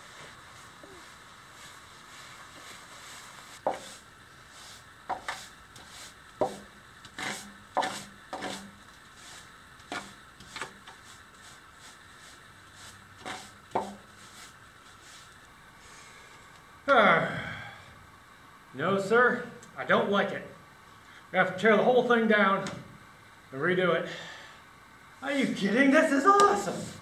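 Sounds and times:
hand tool scraping concrete: 3.6 - 4.0, 4.6 - 15.4.

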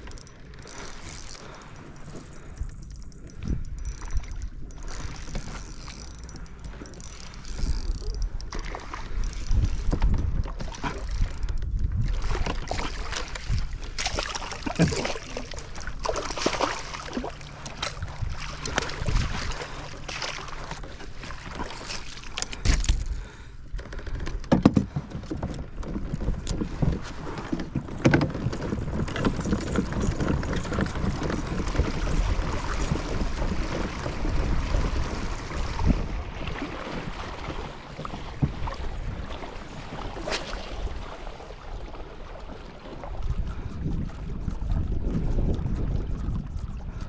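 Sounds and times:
wind rumble on microphone: 0.0 - 47.0
gear knocking on plastic kayak: 2.9 - 36.2
water splashing and dripping: 12.4 - 22.6.

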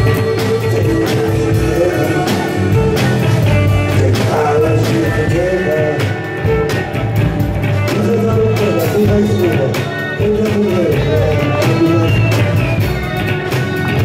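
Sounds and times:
person singing: 0.0 - 7.0, 7.7 - 14.0
amplified guitars: 0.0 - 14.0
steady drumbeat: 0.0 - 14.0.

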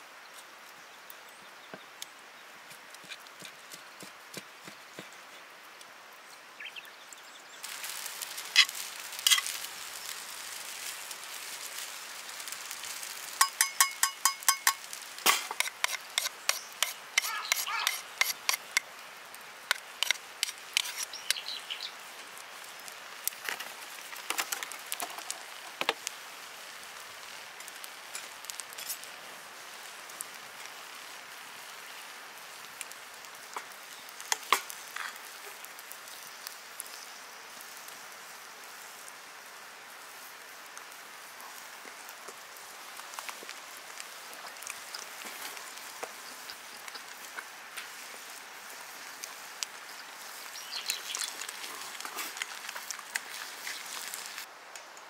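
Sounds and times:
steady hiss: 0.0 - 55.0.

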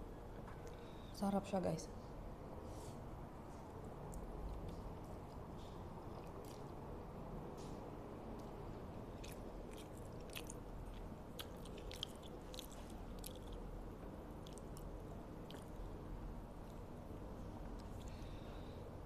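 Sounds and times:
low background hum: 0.0 - 19.0
person chewing noodles: 4.0 - 6.8, 8.3 - 16.0.

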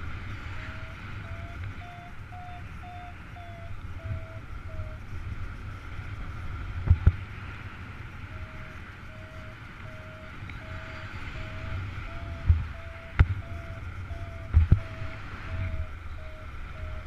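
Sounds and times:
wind on microphone: 0.0 - 17.0
variometer beeping: 0.5 - 5.0, 8.3 - 17.0.

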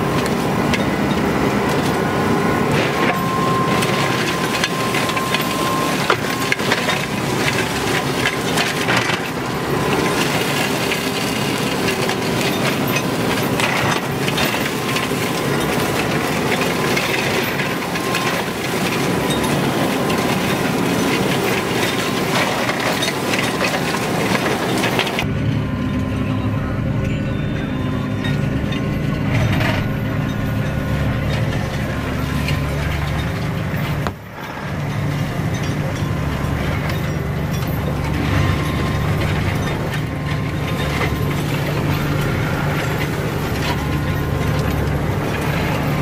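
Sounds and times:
flail mower chopping brush: 0.0 - 25.3.

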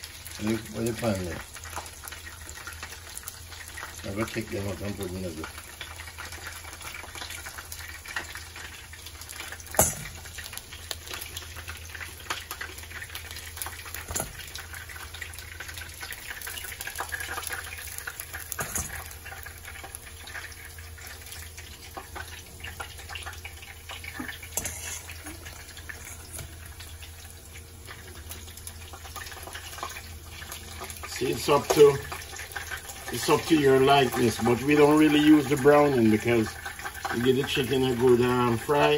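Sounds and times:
chicken sizzling in oil: 0.0 - 38.9
fork clinking on steel bowl: 24.6 - 25.2.

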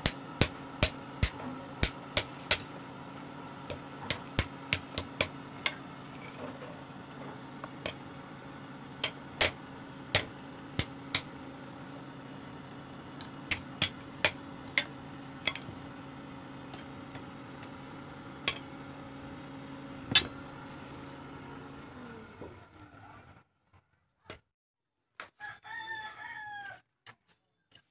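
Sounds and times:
steady low hum: 0.0 - 23.2
hammer clanking on anvil: 20.1 - 20.5.

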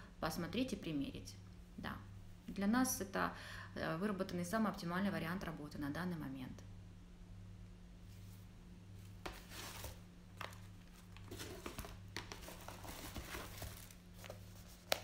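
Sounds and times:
faint electrical hum: 0.0 - 15.0
soft rustling: 8.0 - 15.0.

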